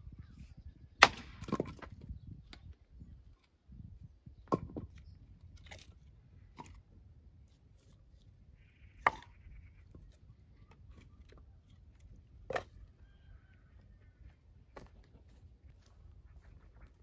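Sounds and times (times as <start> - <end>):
wood cracking and knocking: 1.0 - 2.1, 4.5 - 5.0.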